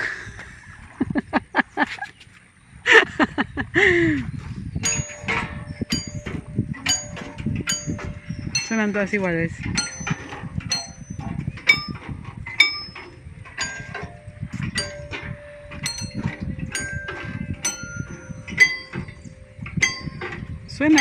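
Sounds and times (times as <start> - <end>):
metal tubular chimes clanging: 4.8 - 21.0.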